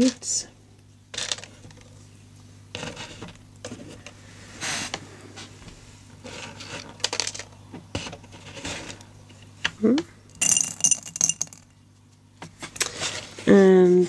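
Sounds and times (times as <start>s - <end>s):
steady low hum: 0.0s - 14.0s
beads rattling in cardboard box: 10.4s - 11.6s.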